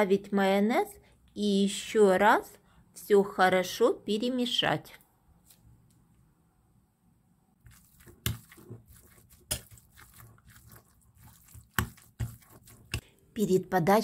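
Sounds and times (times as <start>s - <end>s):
wet squelching stirring: 7.6s - 13.5s.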